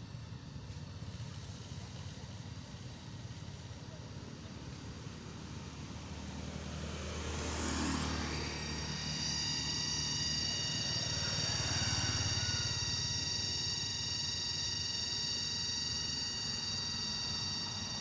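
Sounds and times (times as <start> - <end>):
aircraft engine droning overhead: 0.0 - 18.0
steady high whine: 8.0 - 18.0.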